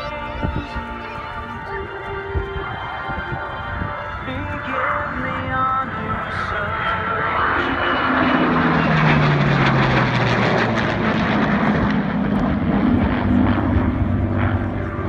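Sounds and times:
jet and propeller aircraft flying past: 0.0s - 15.0s.

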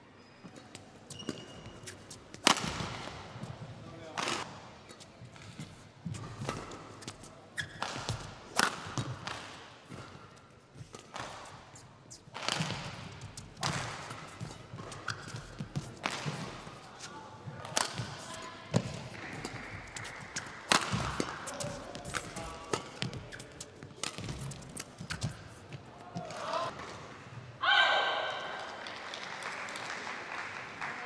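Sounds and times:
shoes squeaking on floor: 0.2s - 2.4s, 14.1s - 17.1s, 21.1s - 25.8s
rackets striking shuttlecock: 2.4s - 3.1s, 7.8s - 10.2s, 12.3s - 16.6s, 17.6s - 25.4s.

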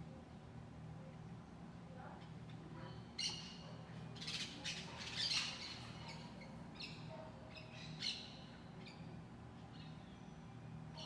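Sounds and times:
faint low hum: 0.0s - 11.0s
birds chirping and squawking: 2.8s - 9.1s.

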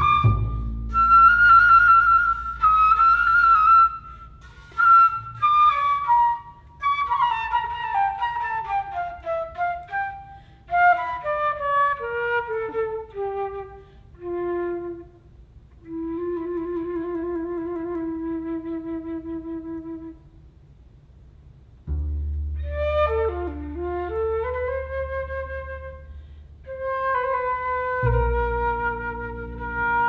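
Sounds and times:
flute playing: 0.0s - 20.4s, 22.6s - 30.0s.

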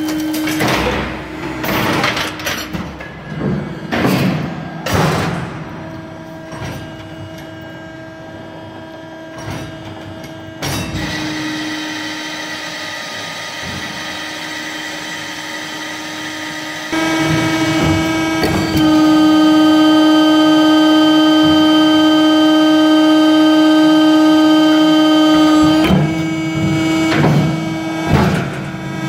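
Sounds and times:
loud mechanical clattering: 0.0s - 7.7s
baling press hydraulic hum: 0.0s - 29.0s.

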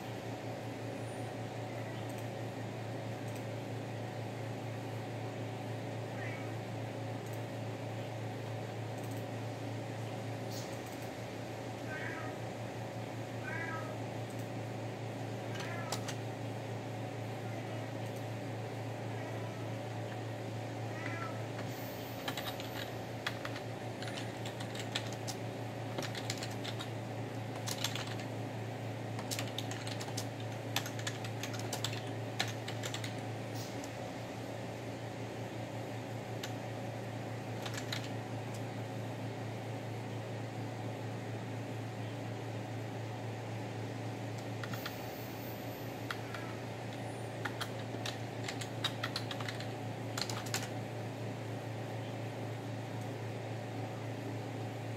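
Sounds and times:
steady fan hum: 0.0s - 54.9s
cat meowing: 6.1s - 6.5s, 11.9s - 12.4s, 13.4s - 14.0s, 15.5s - 16.1s, 20.9s - 21.5s.

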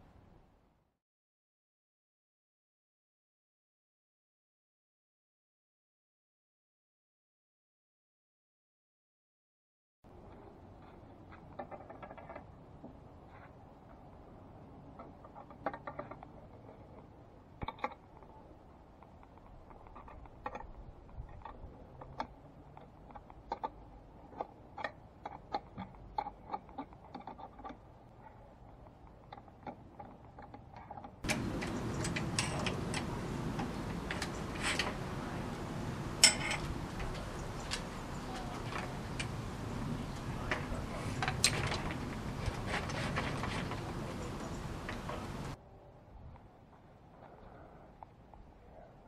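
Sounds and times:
steady loud hiss: 31.3s - 42.6s, 43.4s - 45.6s.

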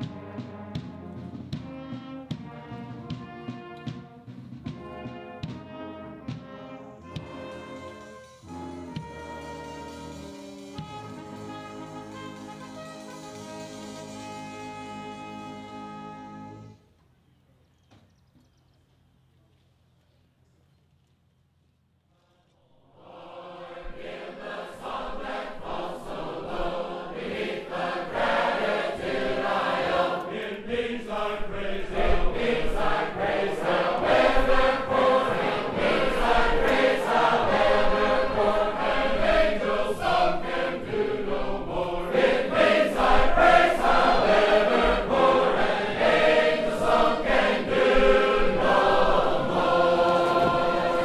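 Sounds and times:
choir singing: 6.4s - 16.8s, 22.6s - 51.0s.

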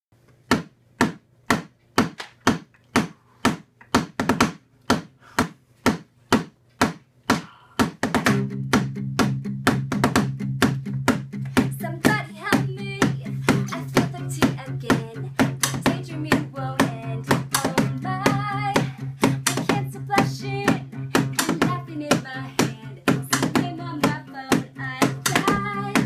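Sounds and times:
beatboxed clicks: 6.7s - 26.0s.

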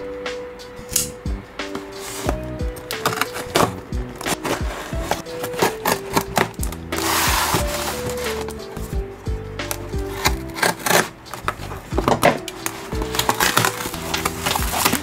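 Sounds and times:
background music: 0.0s - 15.0s
cardboard flaps scraping: 3.0s - 9.0s, 10.1s - 15.0s.

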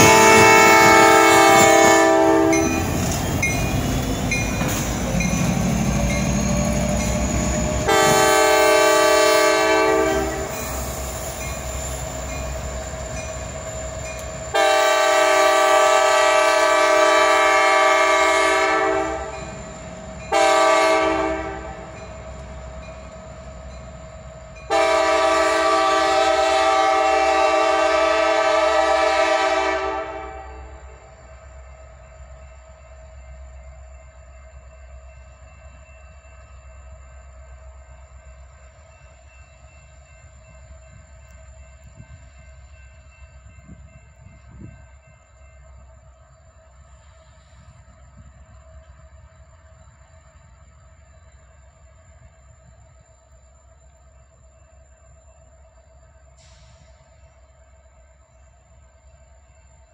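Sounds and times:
locomotive air horn: 0.0s - 3.0s, 7.8s - 10.8s, 14.5s - 19.4s, 20.3s - 21.9s, 24.7s - 31.0s
diesel locomotives rumbling past: 0.0s - 59.9s.

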